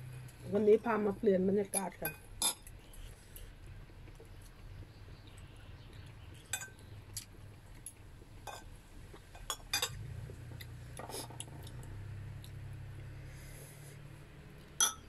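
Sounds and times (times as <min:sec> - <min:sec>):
low steady hum: 0:00.0 - 0:15.0
cutlery clinking on a plate: 0:14.8 - 0:15.0.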